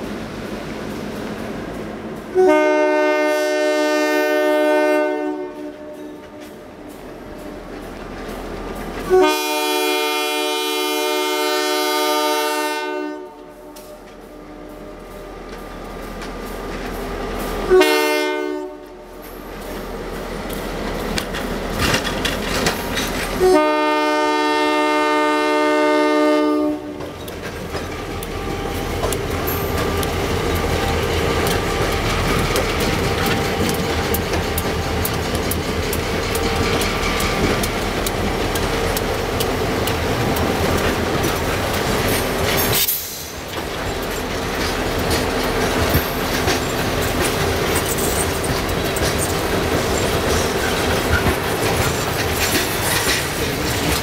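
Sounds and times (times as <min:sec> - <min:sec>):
freight train cars rolling past: 0:00.0 - 0:54.0
locomotive air horn blasts: 0:02.3 - 0:07.6, 0:09.1 - 0:15.1, 0:17.7 - 0:19.1, 0:23.4 - 0:27.0.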